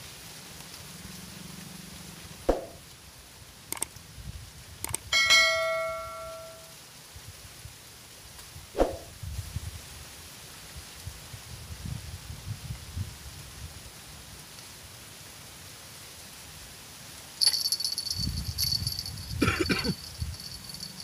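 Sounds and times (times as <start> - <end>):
light clicks: 3.7 - 4.0, 4.8 - 5.1
small metal bell ringing: 5.1 - 6.7, 17.4 - 21.0.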